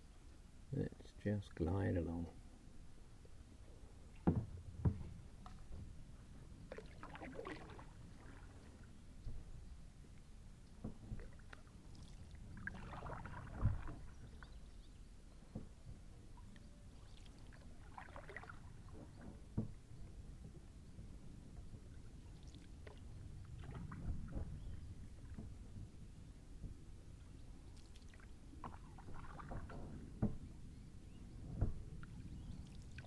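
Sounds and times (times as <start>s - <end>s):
dull knocks: 4.2s - 5.1s
paddle splashing in water: 6.5s - 9.4s, 10.8s - 20.1s, 22.0s - 25.7s, 27.6s - 30.5s.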